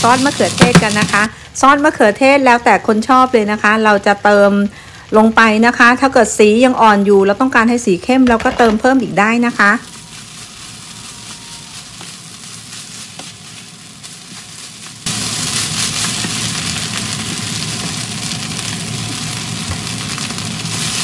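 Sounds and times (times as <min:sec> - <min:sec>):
rice sizzling in a frying pan: 0:00.0 - 0:21.0
wooden spatula stirring: 0:09.6 - 0:18.4.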